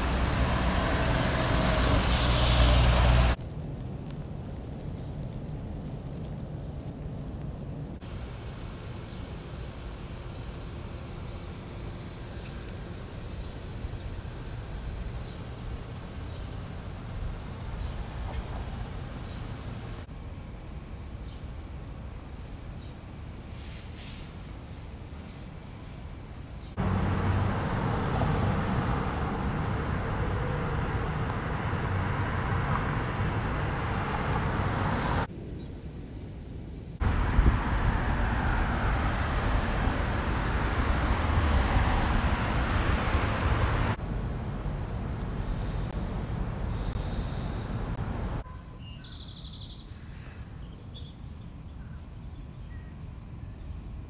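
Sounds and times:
road traffic rush: 0.0 - 3.4, 26.7 - 35.6, 37.0 - 48.5
wind: 0.0 - 54.0.

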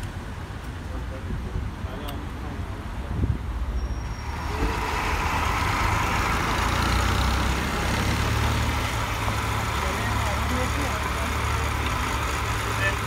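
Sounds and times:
minibus engine idling: 4.1 - 13.0.

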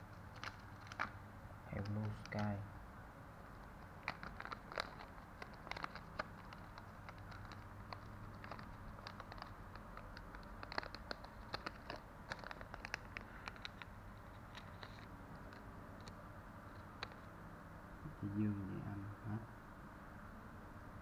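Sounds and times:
plastic bags crinkling: 3.8 - 15.6.

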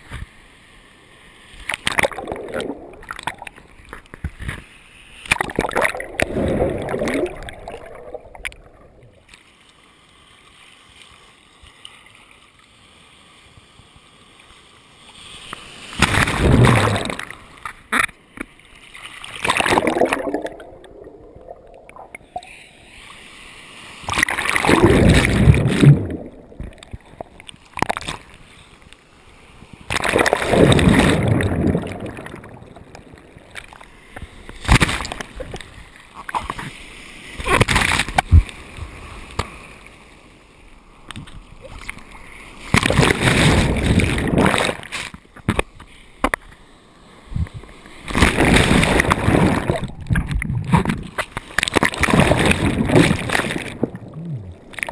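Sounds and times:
water sloshing: 5.3 - 9.3, 19.1 - 22.5, 24.1 - 28.2, 48.0 - 54.9
ocean surf breaking: 19.1 - 27.4, 50.7 - 54.9.

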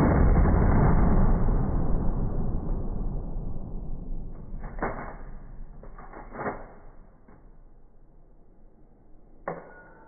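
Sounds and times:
slowed-down shotgun blast boom: 0.0 - 7.0.

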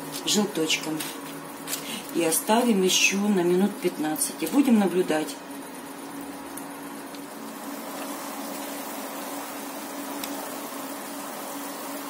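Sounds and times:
chicken sizzling in oven: 0.0 - 12.0
steady oven hum: 0.0 - 12.0.

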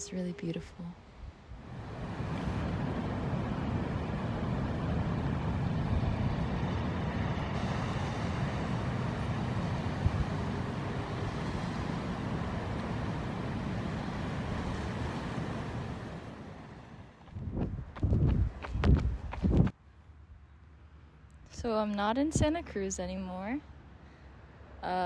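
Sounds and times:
ocean surf breaking on rocks: 1.7 - 17.2
wind on microphone: 17.2 - 19.7, 22.3 - 22.6.

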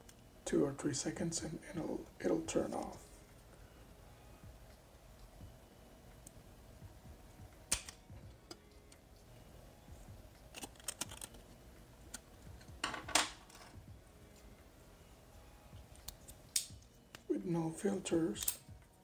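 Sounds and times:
hard plastic clicks and snaps: 7.7 - 9.0, 15.9 - 17.3, 18.4 - 18.7.

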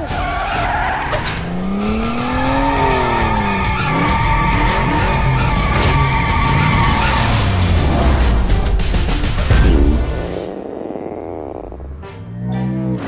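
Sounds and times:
tyres screeching: 0.0 - 7.8
race car engine revving: 0.8 - 12.0.

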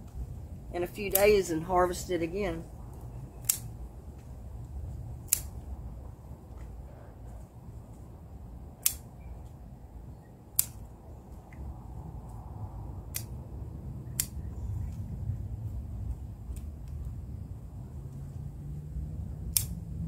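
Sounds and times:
scissors snipping stems: 1.0 - 1.4, 3.4 - 3.7, 5.2 - 5.6, 8.8 - 9.1, 10.6 - 10.8, 13.1 - 13.4, 14.1 - 14.4, 19.5 - 19.8.

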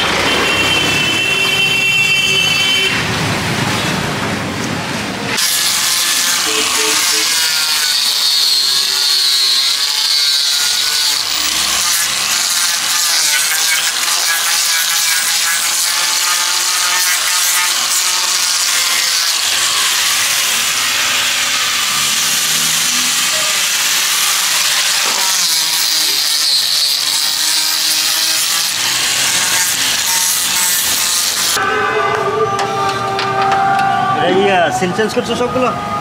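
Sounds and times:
angle grinder sanding: 5.4 - 31.6.

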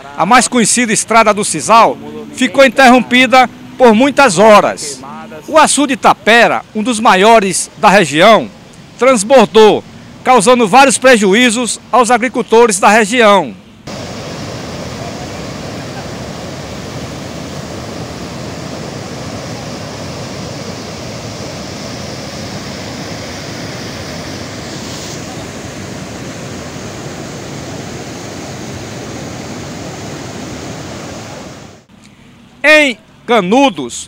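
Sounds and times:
floodwater rushing: 13.9 - 31.9.

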